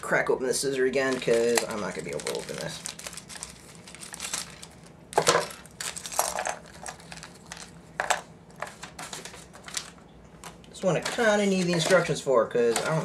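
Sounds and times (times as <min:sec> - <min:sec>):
plastic pieces clattering on table: 0:04.0 - 0:09.9, 0:12.7 - 0:13.0.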